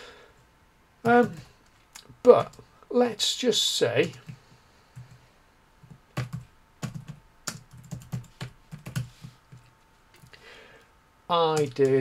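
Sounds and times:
computer keyboard typing: 4.0 - 4.4, 5.8 - 10.3, 11.5 - 12.0.

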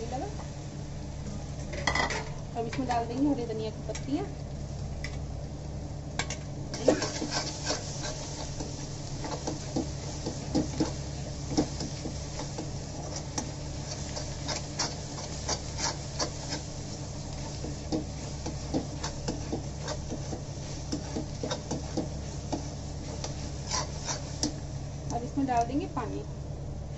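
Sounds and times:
metal spatula scraping a pan: 6.8 - 9.5, 10.2 - 24.5.

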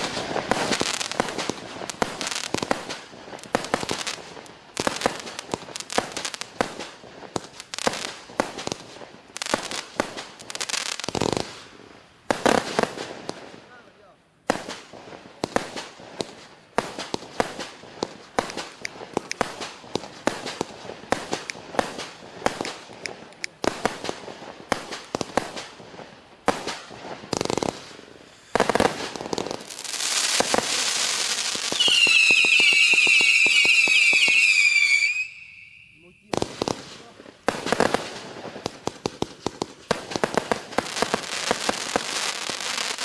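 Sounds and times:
firework shots and crackling bursts: 0.0 - 43.0
shrill wavering firework whistles: 29.8 - 36.8.

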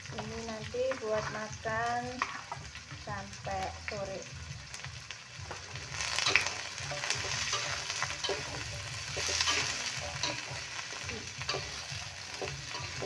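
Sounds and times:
vegetables sizzling in a wok: 0.0 - 13.0
spatula scraping a metal pan: 6.0 - 13.0.

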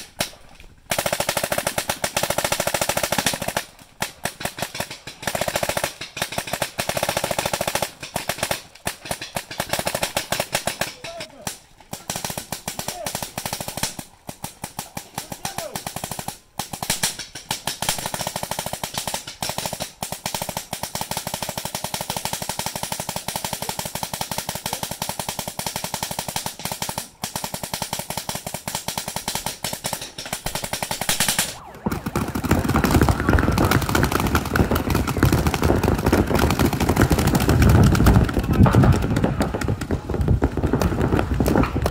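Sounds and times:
paintball marker firing: 26.3 - 41.9.

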